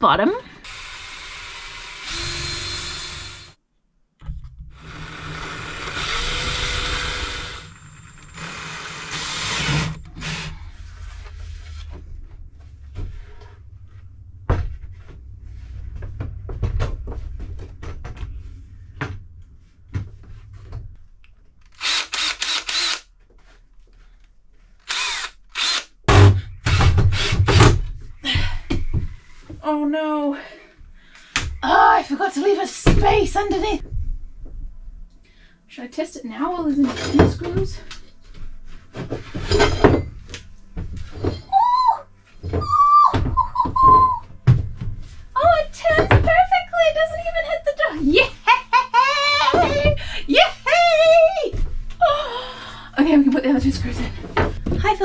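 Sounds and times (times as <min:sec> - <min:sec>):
cordless drill driving screws: 0:00.6 - 0:03.5, 0:04.8 - 0:10.5, 0:21.7 - 0:23.0, 0:24.9 - 0:25.9
wood and tools clattering: 0:36.7 - 0:41.6.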